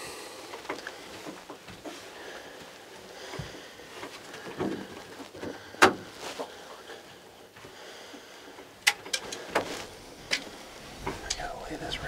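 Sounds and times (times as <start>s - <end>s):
soft handling rustling: 0.6s - 12.0s
sharp clicks and knocks: 8.8s - 9.7s.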